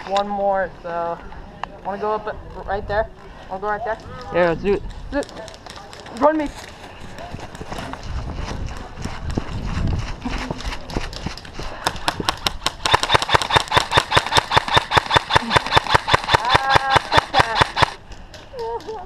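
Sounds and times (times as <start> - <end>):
running footsteps: 3.9 - 14.0
wind rumble: 6.9 - 12.9
rapid airsoft rifle shots: 11.8 - 18.0.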